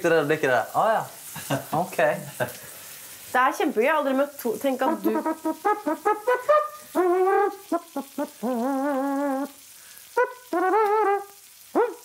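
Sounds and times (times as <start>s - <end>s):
person imitating trumpet with mouth: 4.9s - 9.6s, 10.2s - 12.0s.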